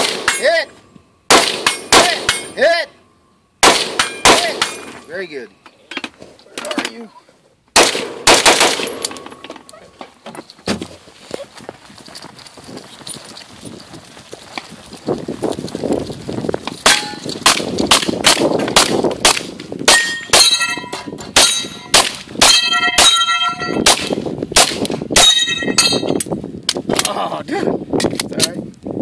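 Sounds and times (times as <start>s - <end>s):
steel targets clanging: 0.0s - 0.8s, 1.6s - 2.8s, 4.0s - 7.0s, 16.8s - 17.4s, 19.9s - 23.8s
pistol shots: 1.3s - 2.5s, 3.6s - 4.9s, 7.8s - 9.3s, 21.4s - 26.0s.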